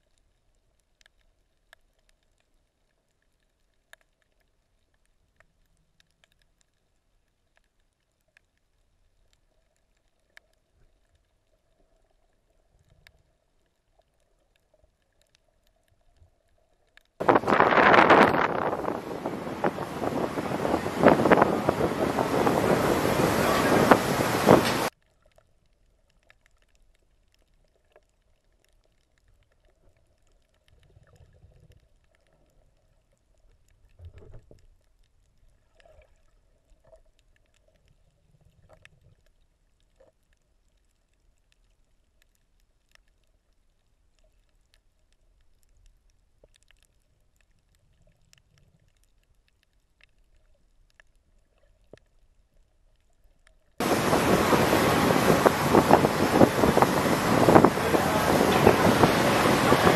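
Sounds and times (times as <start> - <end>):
faint underwater ticks: 0.0 - 22.4, 23.5 - 59.9
wind buffeting microphone: 17.2 - 24.9, 53.8 - 59.9.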